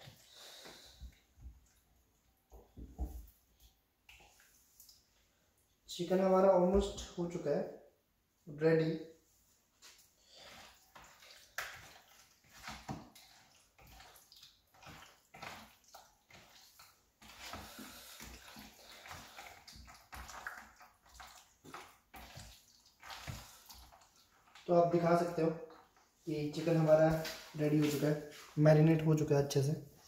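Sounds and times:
wet squelching of meat in marinade: 9.8s - 27.6s.

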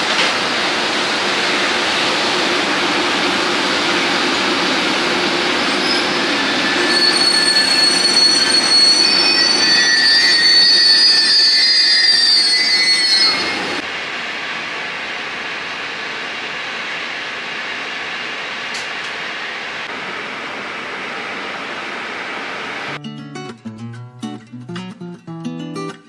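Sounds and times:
train running noise: 0.0s - 23.0s
train wheels squealing: 5.7s - 13.8s.

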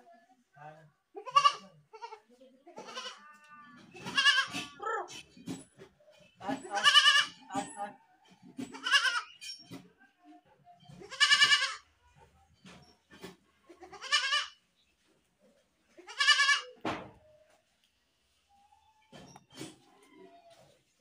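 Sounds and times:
goat bleating: 1.2s - 4.8s, 6.6s - 7.5s, 8.7s - 9.3s, 11.0s - 11.9s, 13.7s - 14.6s, 16.0s - 16.8s.

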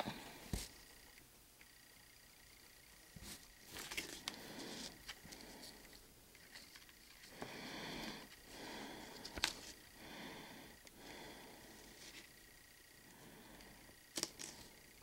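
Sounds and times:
breathing through the nose: 7.2s - 12.0s.

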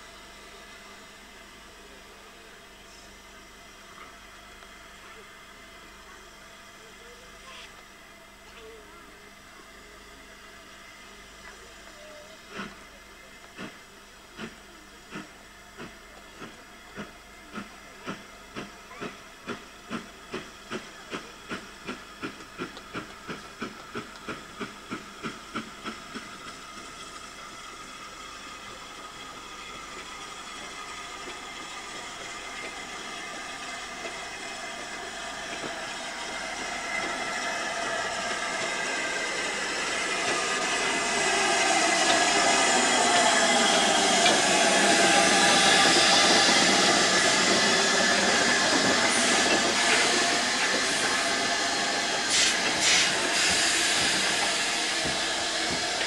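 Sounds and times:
steam locomotive exhaust beats: 11.6s - 56.0s
steam hissing: 13.6s - 56.0s.

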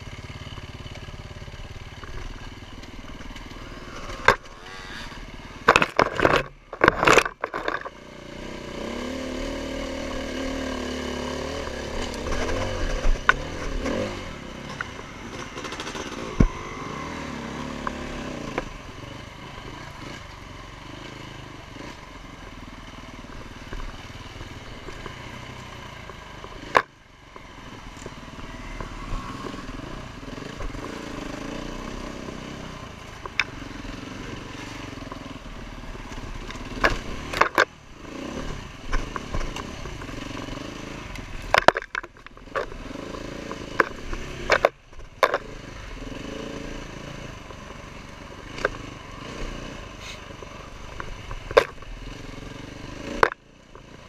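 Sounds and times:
dirt bike engine revving: 7.6s - 22.4s, 23.0s - 54.0s
bike knocking and clattering over bumps: 11.5s - 16.6s, 41.2s - 45.5s.

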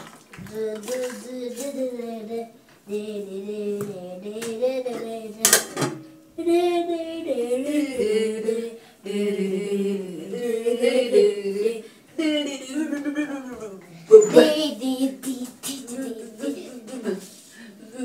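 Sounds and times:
woman singing long notes: 6.4s - 12.7s.

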